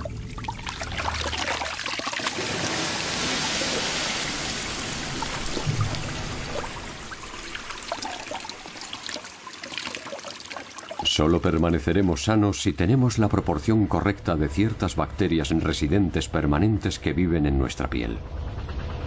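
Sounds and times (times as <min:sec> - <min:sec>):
tap water running into sink: 0:00.0 - 0:11.7.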